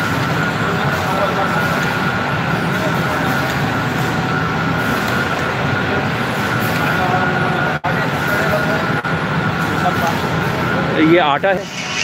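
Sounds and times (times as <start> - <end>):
production line machines running: 0.0 - 12.0
high-pitched whine: 11.0 - 12.0.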